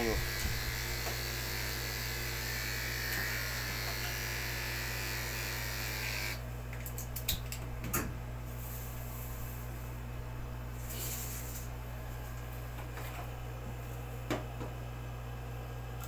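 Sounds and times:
electric clipper buzzing: 0:00.0 - 0:06.4.

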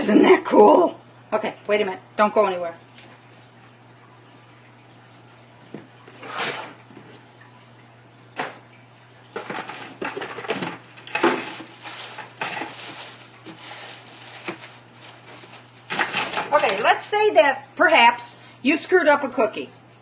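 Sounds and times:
faint steady hum: 0:00.0 - 0:20.0
household items clattering: 0:09.3 - 0:17.0.

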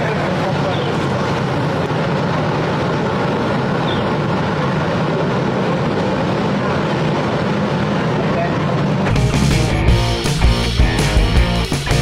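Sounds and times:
people talking: 0:00.0 - 0:02.6, 0:07.7 - 0:09.0
motorcycle engine running: 0:00.0 - 0:12.0.

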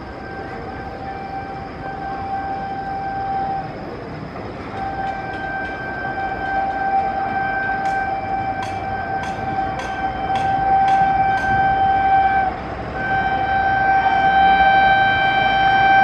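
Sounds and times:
locomotive air horn blasts: 0:00.0 - 0:03.8, 0:04.7 - 0:16.0
train rumble: 0:00.0 - 0:16.0.

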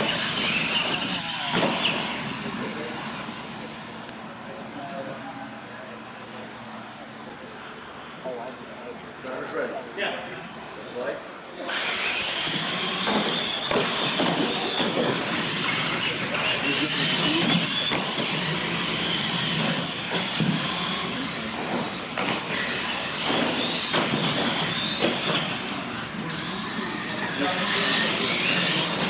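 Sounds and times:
electric motor and gear whine: 0:00.0 - 0:04.7, 0:11.6 - 0:29.0
trucks knocking over ramps: 0:12.2 - 0:25.7
tyre noise on concrete: 0:12.5 - 0:25.7.

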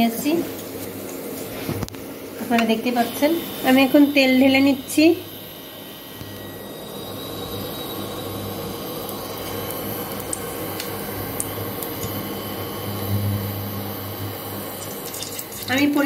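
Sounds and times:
oil trickling into metal pan: 0:14.8 - 0:15.7.

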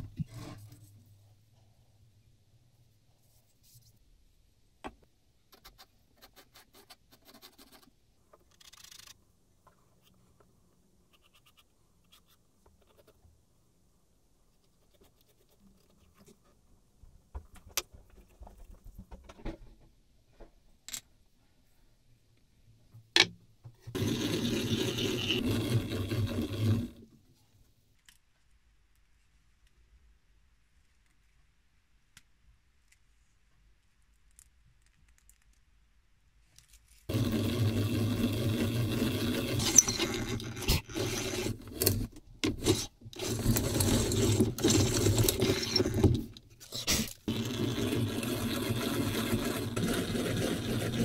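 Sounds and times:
pencil scratching on wood: 0:05.5 - 0:07.9, 0:23.9 - 0:27.0, 0:37.1 - 0:51.0.

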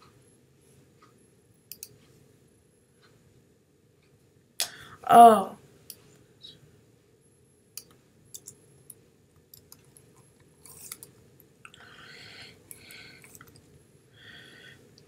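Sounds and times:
soft breathing: 0:04.6 - 0:05.0, 0:11.7 - 0:15.0.

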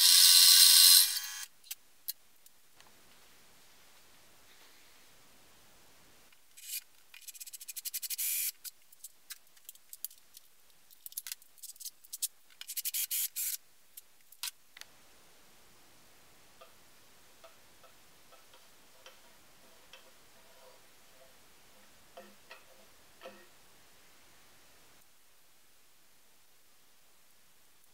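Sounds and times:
drill bit boring through metal: 0:00.0 - 0:01.5.

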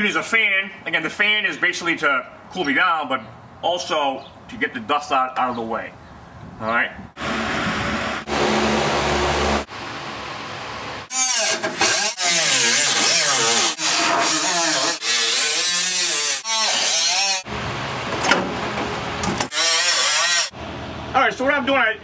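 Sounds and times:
cutoff wheel cutting metal: 0:11.1 - 0:17.5, 0:19.2 - 0:20.6.

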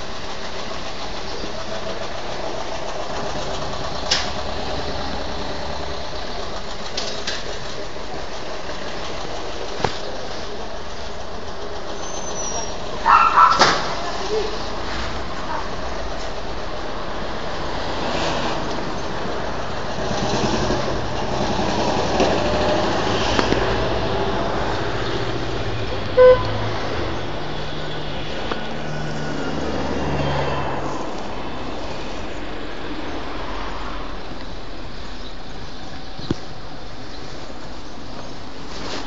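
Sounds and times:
vehicle rumbling past: 0:00.0 - 0:38.0
car horn beep: 0:26.2 - 0:26.6.

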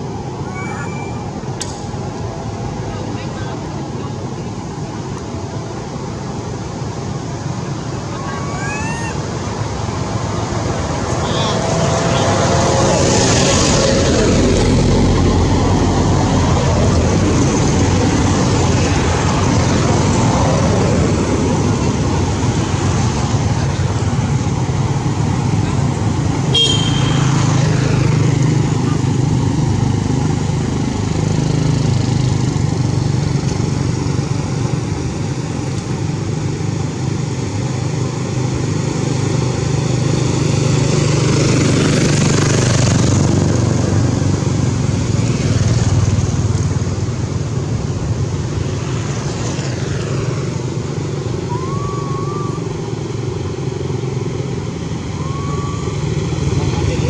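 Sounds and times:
motorcycle engines droning: 0:00.0 - 0:57.0
vehicles passing: 0:00.0 - 0:57.0
faint short high calls: 0:26.5 - 0:27.4, 0:51.5 - 0:52.7.

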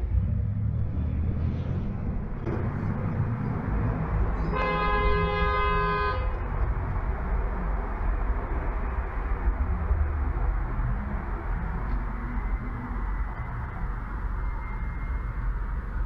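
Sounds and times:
car engine rumble: 0:00.0 - 0:16.0
road noise: 0:00.0 - 0:16.0
car horn blast: 0:04.5 - 0:06.3.

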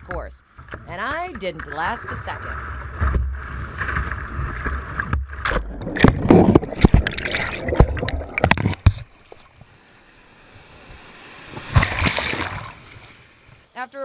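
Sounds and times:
kayak knocks and splashes: 0:00.0 - 0:09.7, 0:10.8 - 0:13.6.

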